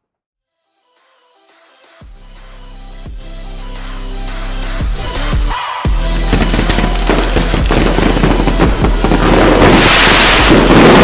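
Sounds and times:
electronic music: 0:00.7 - 0:11.0
fireworks crackling and banging: 0:06.2 - 0:11.0.

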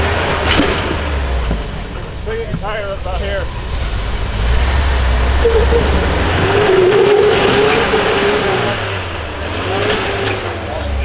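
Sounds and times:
truck engine revving: 0:02.9 - 0:11.0.

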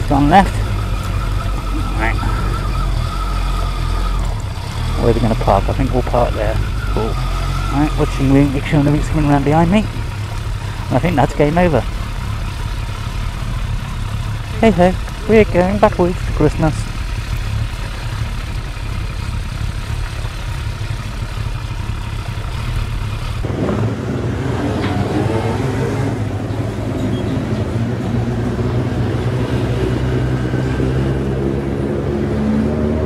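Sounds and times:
motorcycle engine idling: 0:00.0 - 0:23.4.

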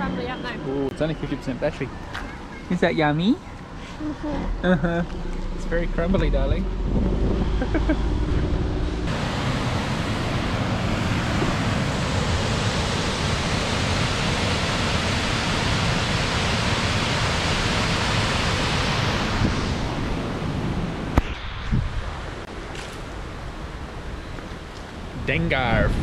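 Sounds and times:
waterfall rushing: 0:09.1 - 0:20.6.

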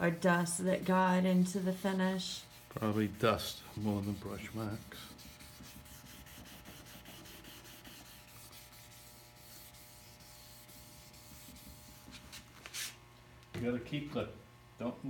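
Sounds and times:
steady low hum: 0:00.0 - 0:15.0
wet sanding strokes on wood: 0:01.4 - 0:13.0.

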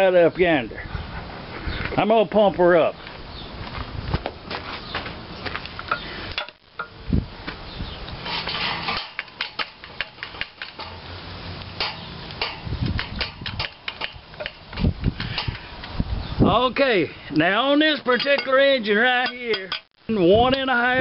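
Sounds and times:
sharp metallic clicks and clinks: 0:08.4 - 0:11.0, 0:18.1 - 0:18.6.

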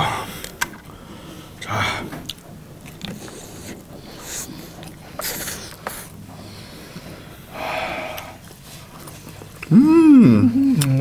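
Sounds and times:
person chewing: 0:02.2 - 0:06.2.

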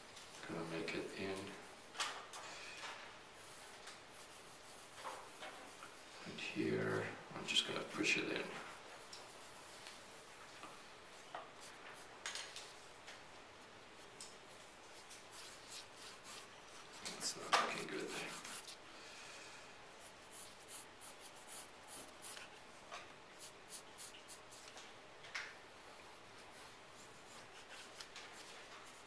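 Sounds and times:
pencil scratching on paper: 0:14.5 - 0:18.8, 0:20.0 - 0:22.6, 0:26.6 - 0:29.0.

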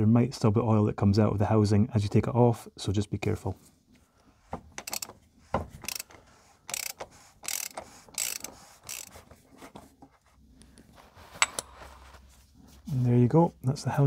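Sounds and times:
socket ratchet clicking: 0:04.8 - 0:05.2, 0:05.8 - 0:09.2.

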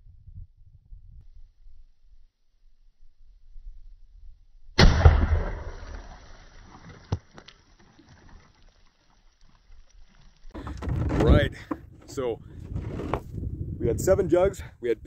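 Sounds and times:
rifle shot: 0:04.8 - 0:06.6.

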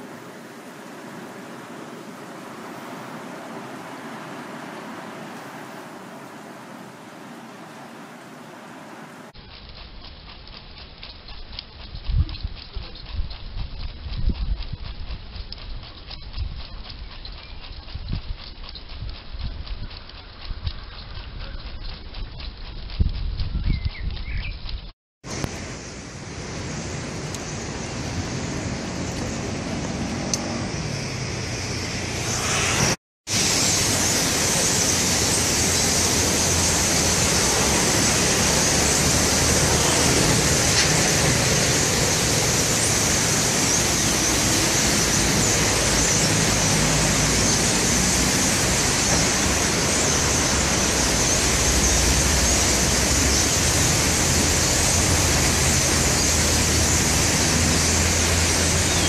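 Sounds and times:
wind rushing through trees: 0:00.0 - 0:09.4, 0:25.2 - 0:59.0.

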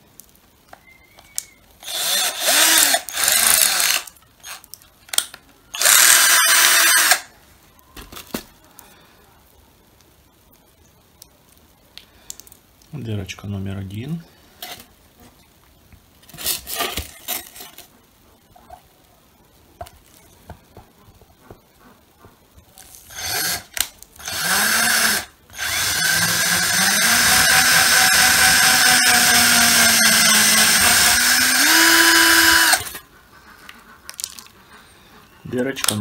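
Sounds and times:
cordless drill running: 0:01.8 - 0:07.3, 0:23.1 - 0:33.0.

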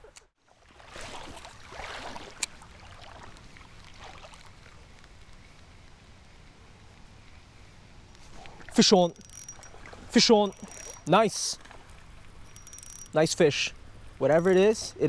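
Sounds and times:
creek water splashing: 0:00.4 - 0:05.8, 0:08.2 - 0:12.4.

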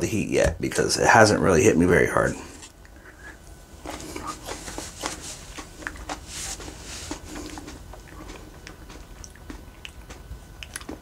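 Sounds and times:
person chewing: 0:02.9 - 0:11.0
mouth clicks: 0:07.5 - 0:11.0.

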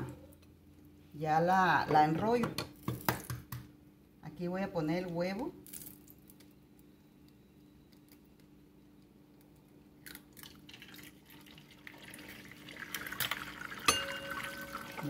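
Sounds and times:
oil sizzling: 0:10.7 - 0:15.0.

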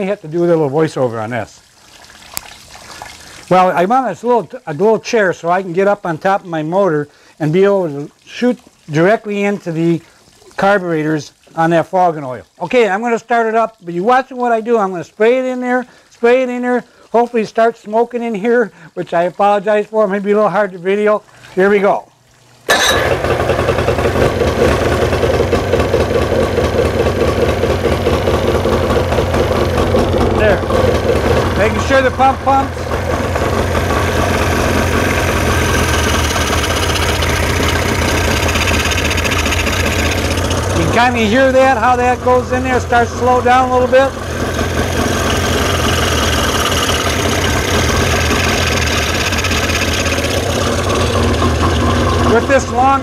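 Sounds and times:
outboard motor running: 0:22.6 - 0:53.0.

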